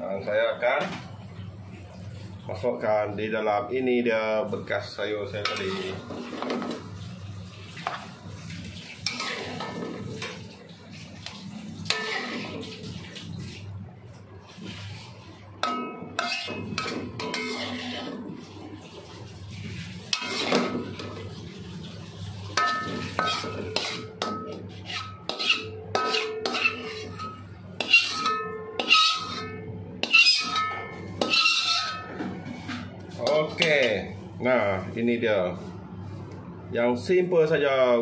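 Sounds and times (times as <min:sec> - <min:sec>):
steady low hum: 0:00.0 - 0:37.3
metal spatula scraping a wok: 0:05.4 - 0:06.8, 0:09.0 - 0:10.4, 0:11.8 - 0:12.8, 0:14.6 - 0:18.6, 0:19.6 - 0:21.4, 0:22.2 - 0:34.1.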